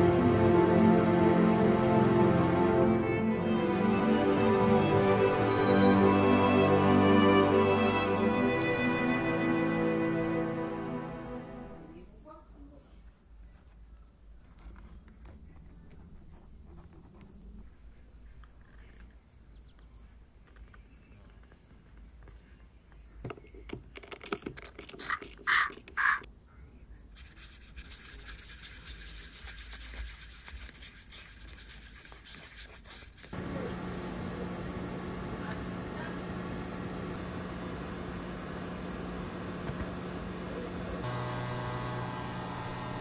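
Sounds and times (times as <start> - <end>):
paintbrush stirring paint: 27.1 - 33.5
sharp handling scrapes: 27.2 - 33.4.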